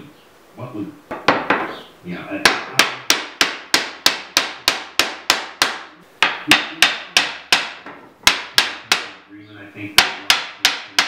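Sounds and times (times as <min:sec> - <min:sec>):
hammer tapping on wood: 0:02.4 - 0:09.2, 0:10.0 - 0:11.0.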